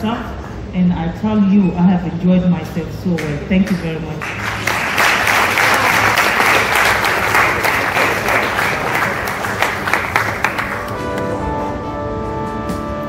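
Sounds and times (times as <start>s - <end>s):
audience applauding: 4.2s - 11.6s
music with held notes: 10.4s - 13.0s.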